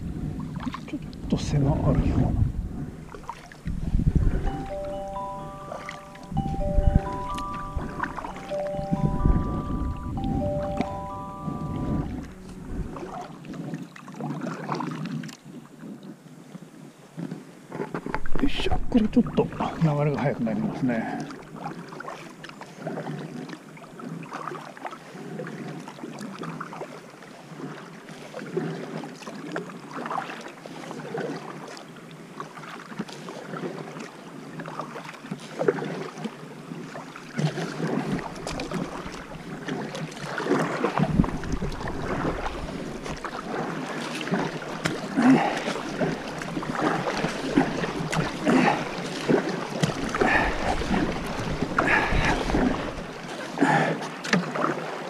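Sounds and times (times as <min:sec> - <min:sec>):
water rushing against kayak: 0:00.0 - 0:55.0
kayak paddles splashing: 0:02.6 - 0:11.4, 0:12.0 - 0:16.2, 0:16.8 - 0:55.0.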